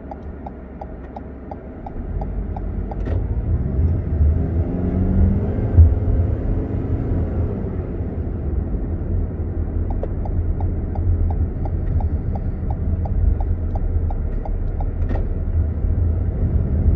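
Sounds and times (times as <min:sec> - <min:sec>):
turn signal ticking: 0:00.0 - 0:04.1, 0:09.7 - 0:16.0
car road and engine rumble: 0:00.0 - 0:16.9.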